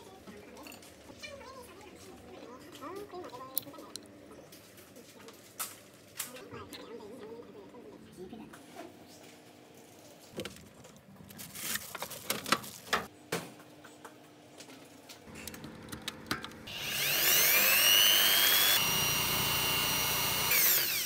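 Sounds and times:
electric drill boring metal: 16.7 - 21.0.

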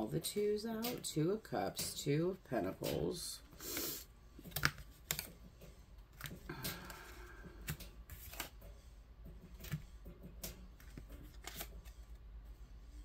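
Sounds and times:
cards rustling: 3.6 - 8.9, 9.5 - 9.9, 10.5 - 12.2.

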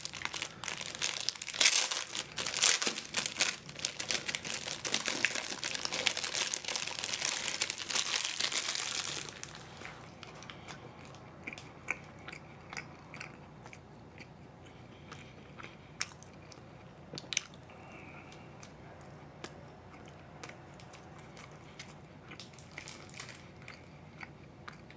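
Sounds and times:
plastic wrapper crinkling: 0.0 - 10.4, 22.4 - 23.4.

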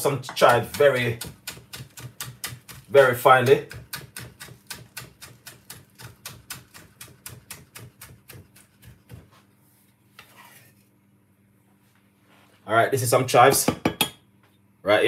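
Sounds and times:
knife chopping on wooden board: 0.3 - 9.3.

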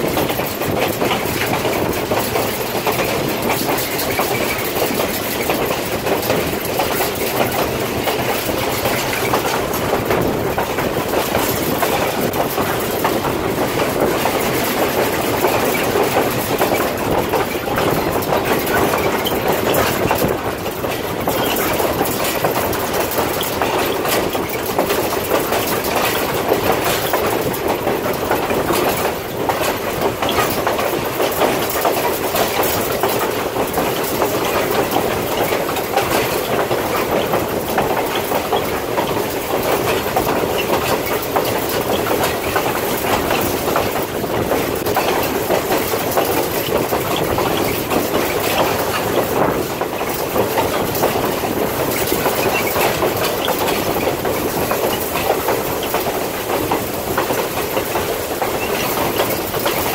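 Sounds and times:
train wheels rumbling on rail: 0.0 - 59.9
wheels clicking and clacking: 0.0 - 59.9.

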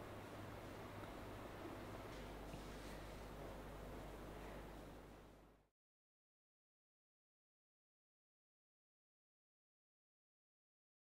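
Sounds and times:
faint steady hiss: 0.0 - 5.7.

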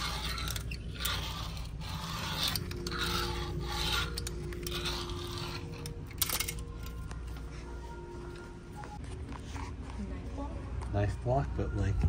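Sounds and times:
fingerboard wheels rolling on ceramic: 0.0 - 6.2.

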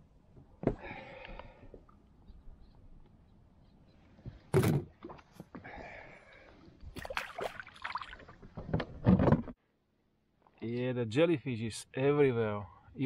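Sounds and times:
fish splashing in water: 7.0 - 8.3.

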